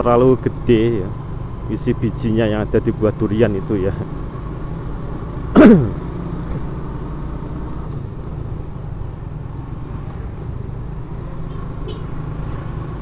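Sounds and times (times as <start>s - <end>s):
road hum: 0.0s - 13.0s
person coughing: 5.6s - 6.0s.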